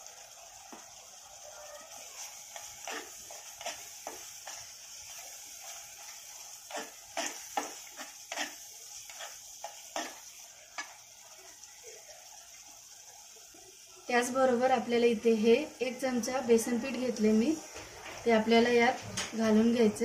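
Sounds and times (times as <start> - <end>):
paste sizzling in oil: 0.0 - 18.9
utensil scraping a pan: 2.5 - 10.9.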